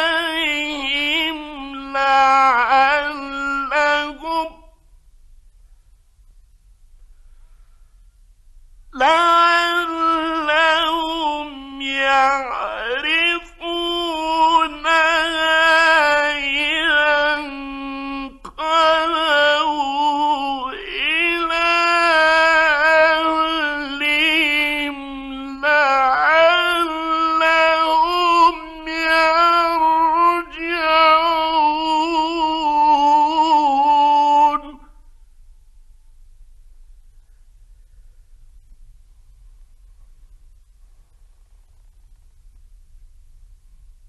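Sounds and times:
man reciting melodically: 0:00.0 - 0:04.8, 0:08.9 - 0:35.0.

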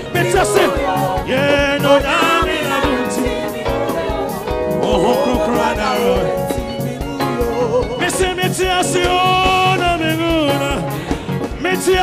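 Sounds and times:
band with drum beat: 0:00.0 - 0:12.0
voices singing in harmony: 0:00.0 - 0:12.0.

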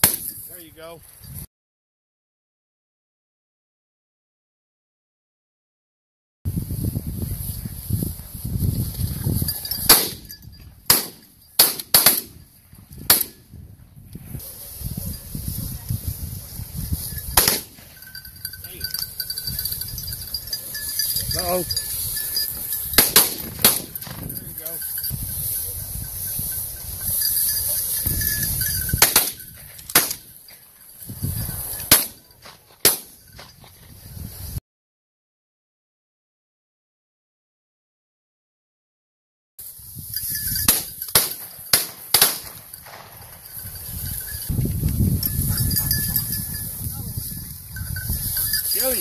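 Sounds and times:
shotgun shots: 0:10.9 - 0:12.4, 0:17.4 - 0:17.8, 0:23.0 - 0:24.2, 0:40.7 - 0:43.0
shotgun shots with echo: 0:17.4 - 0:17.8, 0:40.7 - 0:42.5.

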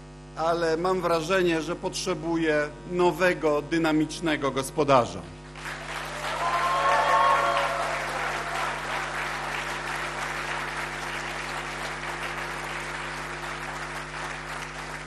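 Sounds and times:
audience applauding: 0:05.6 - 0:15.0.

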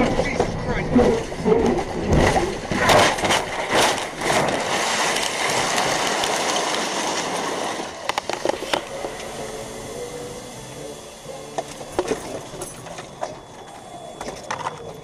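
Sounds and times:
car crash impacts: 0:01.8 - 0:08.5.

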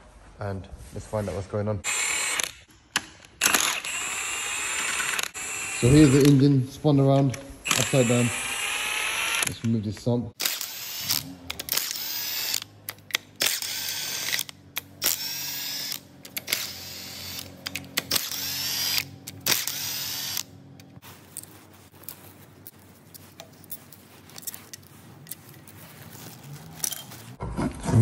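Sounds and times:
power tool whirring in bursts: 0:01.9 - 0:02.6, 0:03.4 - 0:06.4, 0:07.6 - 0:09.6, 0:10.4 - 0:12.7, 0:13.4 - 0:20.6.

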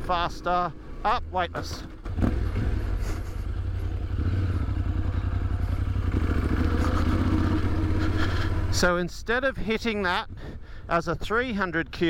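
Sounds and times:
motorcycle engine running: 0:00.0 - 0:09.1.

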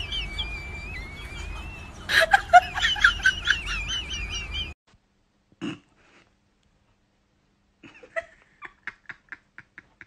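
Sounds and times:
warbling whistle-like tone: 0:00.0 - 0:02.1.

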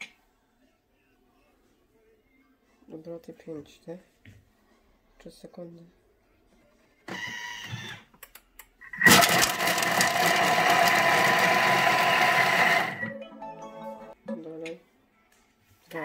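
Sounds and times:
food processor blade chopping: 0:09.0 - 0:13.1.

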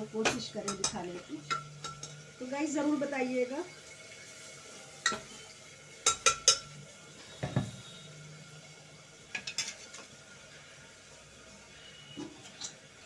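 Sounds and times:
metal spoon clinking on pot: 0:00.2 - 0:02.2, 0:05.0 - 0:05.3, 0:06.0 - 0:06.8.

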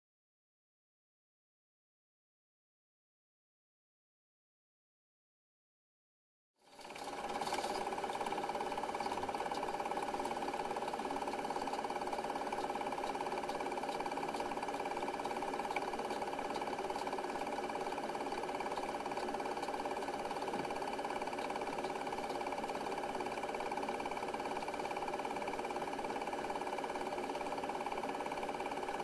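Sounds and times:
film projector whirring and rattling: 0:06.6 - 0:29.0.

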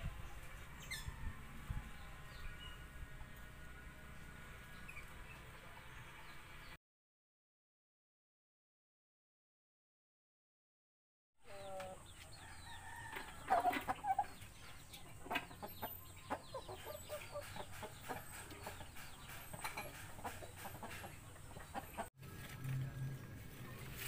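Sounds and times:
chickens clucking and calling: 0:11.4 - 0:22.1.

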